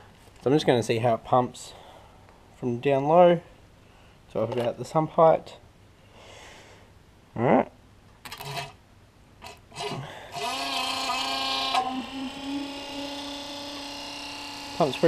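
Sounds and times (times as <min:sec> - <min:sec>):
electric oil pump whining: 0:08.3 - 0:08.8, 0:09.4 - 0:15.0.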